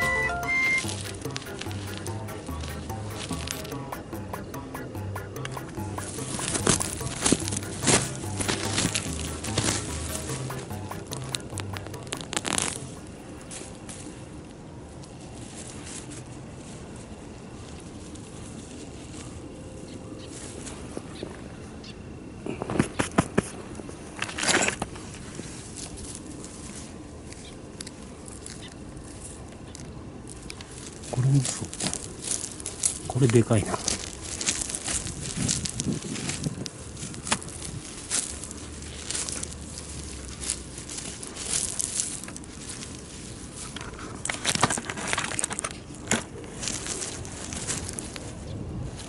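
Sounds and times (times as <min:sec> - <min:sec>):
soil and grit scraping: 0:00.9 - 0:13.9
hand digging in gravelly soil: 0:05.1 - 0:14.1, 0:30.3 - 0:48.4
small stones clicking together: 0:10.9 - 0:13.0.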